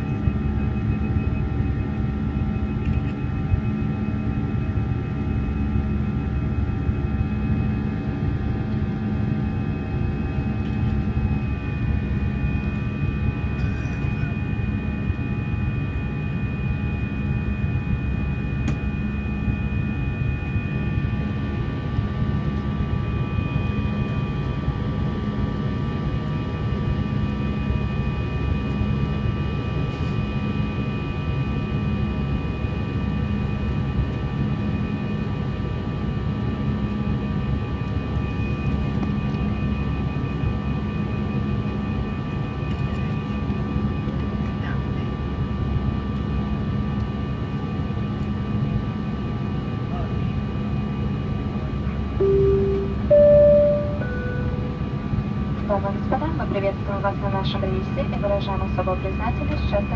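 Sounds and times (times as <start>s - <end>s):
low jet engine drone: 0.0s - 59.9s
steady whining tones: 52.2s - 59.9s.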